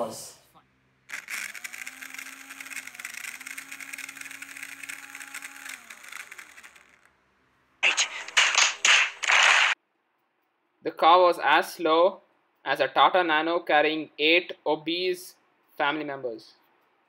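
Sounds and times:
small motor whining: 0:01.0 - 0:07.2.

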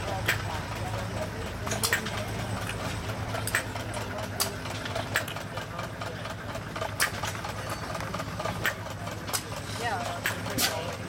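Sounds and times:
gas engine popping: 0:00.0 - 0:11.0
low engine hum: 0:00.0 - 0:11.0.

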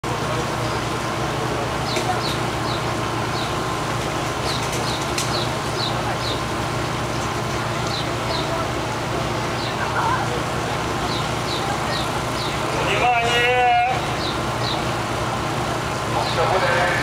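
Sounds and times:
small birds chirping: 0:01.8 - 0:03.6, 0:04.4 - 0:08.7, 0:09.3 - 0:09.9, 0:11.0 - 0:13.0, 0:14.1 - 0:15.0.

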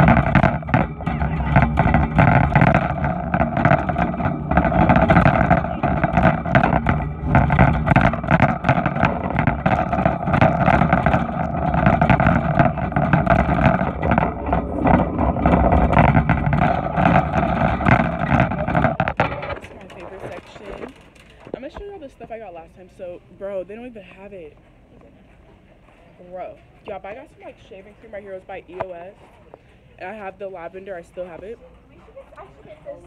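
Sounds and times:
wire shopping cart rattling: 0:00.0 - 0:22.6.

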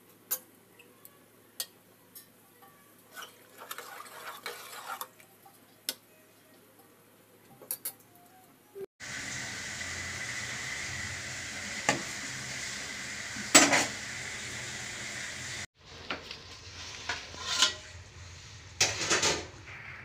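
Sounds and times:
water stirred and sloshing: 0:03.1 - 0:05.2.

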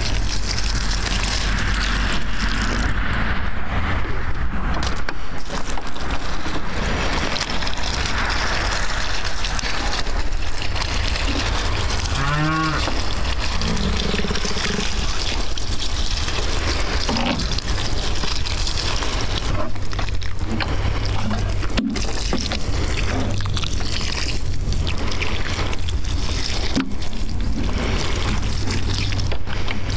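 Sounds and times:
steady rushing noise: 0:00.0 - 0:12.2
cattle mooing: 0:11.9 - 0:15.0.

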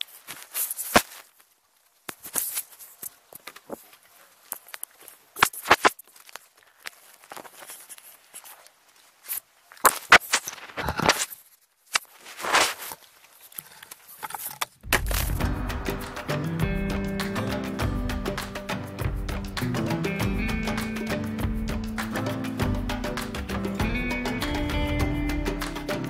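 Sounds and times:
music: 0:14.9 - 0:26.0.

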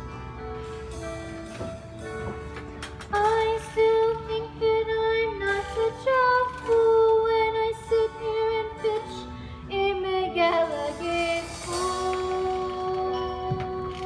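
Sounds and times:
musical accompaniment: 0:00.0 - 0:14.0.

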